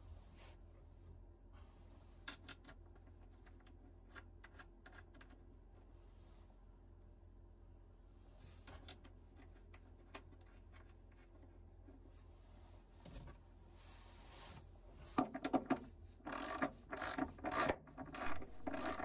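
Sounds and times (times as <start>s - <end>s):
small clicks and rubbing: 2.2s - 5.8s, 8.5s - 12.2s, 15.1s - 19.0s
socket ratchet clicking: 16.3s - 19.0s.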